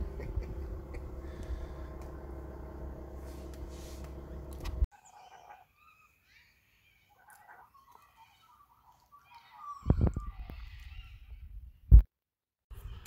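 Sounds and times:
low mechanical hum: 0.0s - 4.9s
faint high bird chirps: 5.0s - 12.0s.

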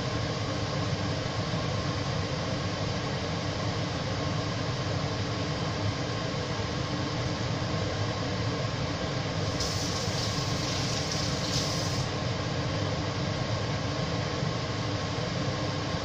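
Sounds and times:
bright hiss: 9.5s - 12.1s
pan cooking on hob: 9.5s - 12.1s.

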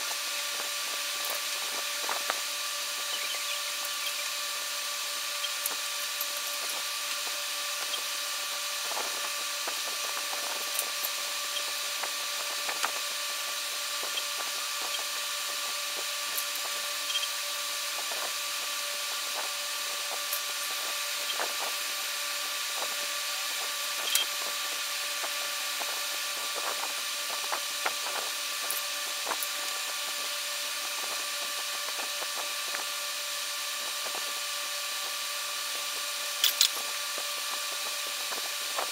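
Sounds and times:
steady hiss with whine: 0.0s - 38.9s.

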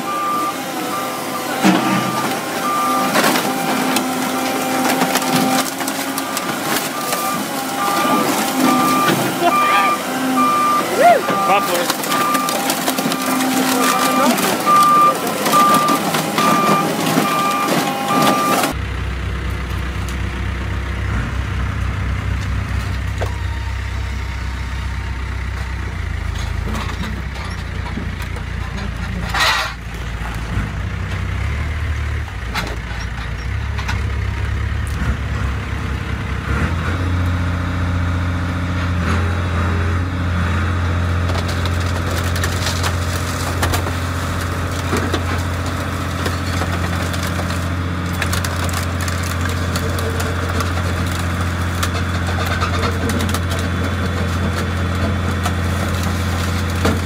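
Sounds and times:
reversing alarm beeping: 0.0s - 4.0s, 5.3s - 18.8s, 23.2s - 25.4s
diesel engine and hydraulics droning: 0.0s - 57.0s.

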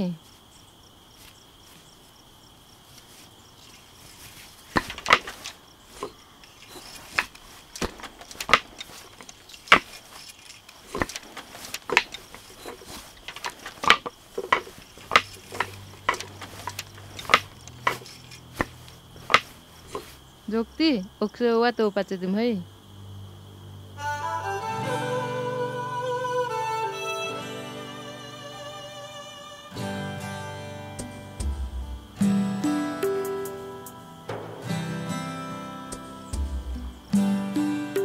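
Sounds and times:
cricket trill: 0.0s - 38.0s
wooden loom knocking and clacking: 4.7s - 6.2s, 7.0s - 10.2s, 10.9s - 20.0s.

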